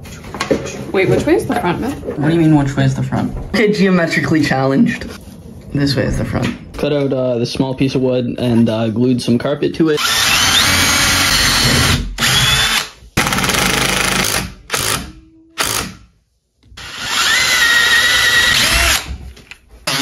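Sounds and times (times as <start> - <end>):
power tool working wood: 10.0 - 15.0, 16.8 - 19.1.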